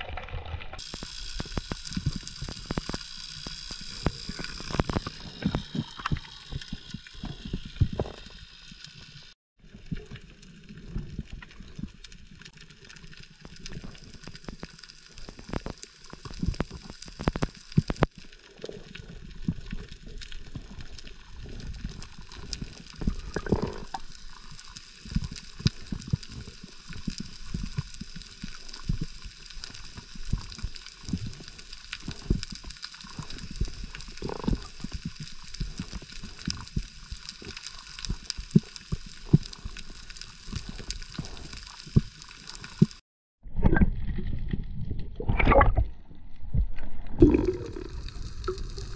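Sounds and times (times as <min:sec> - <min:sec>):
sharp clicks underwater: 0:00.0 - 0:08.9, 0:21.8 - 0:48.9
underwater hiss: 0:00.8 - 0:09.4.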